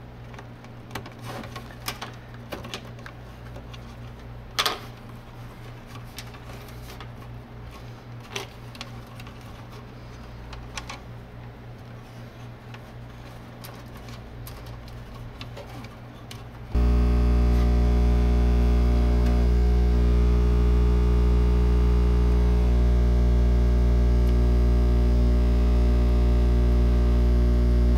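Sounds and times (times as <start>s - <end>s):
low hum: 16.8s - 27.9s.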